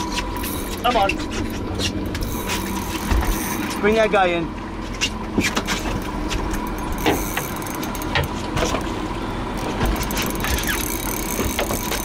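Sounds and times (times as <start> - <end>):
outboard engines idling: 0.0 - 12.0
fishing reel cranking: 2.2 - 3.9, 6.6 - 8.2, 10.0 - 12.0.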